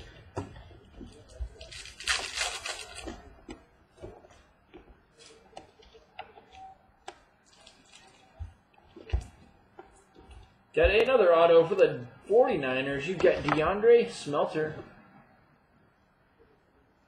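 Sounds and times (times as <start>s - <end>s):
card stock rustling: 1.0s - 4.2s.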